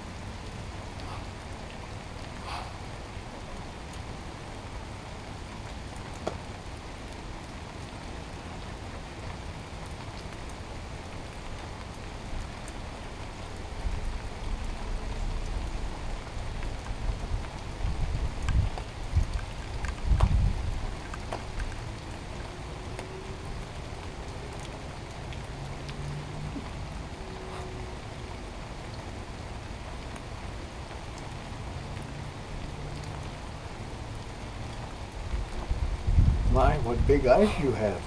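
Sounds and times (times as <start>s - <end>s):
outdoor background hiss: 0.0s - 38.0s
wind rumble on microphone: 10.9s - 30.7s, 31.4s - 38.0s.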